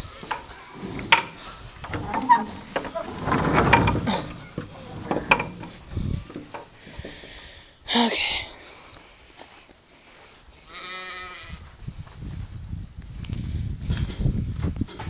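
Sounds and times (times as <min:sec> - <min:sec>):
wooden boards knocking and clattering: 0:00.0 - 0:07.3.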